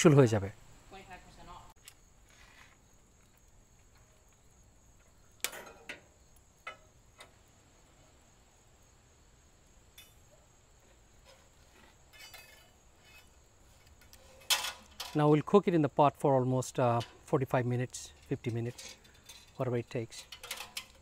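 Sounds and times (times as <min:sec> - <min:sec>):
metal tongs clinking on cast iron: 0:05.4 - 0:06.0, 0:09.9 - 0:10.3, 0:12.1 - 0:13.3.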